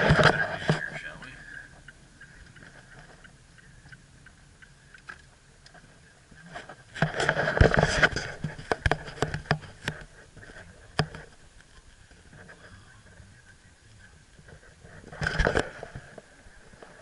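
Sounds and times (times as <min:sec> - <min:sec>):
camera handling rubbing and knocking: 0:00.0 - 0:01.0, 0:06.4 - 0:12.6, 0:14.4 - 0:17.0.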